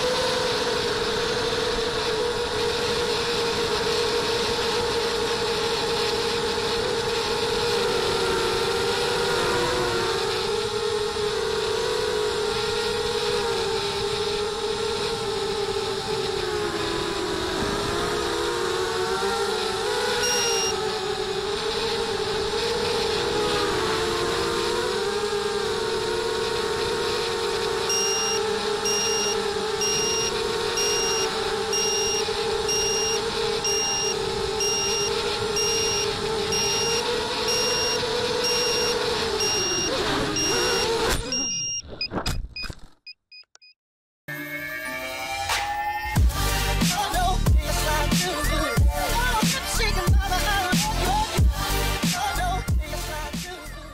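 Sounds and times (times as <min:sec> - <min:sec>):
drone motors whining: 0:00.0 - 0:42.8
high beep: 0:20.2 - 0:20.8, 0:27.9 - 0:41.9.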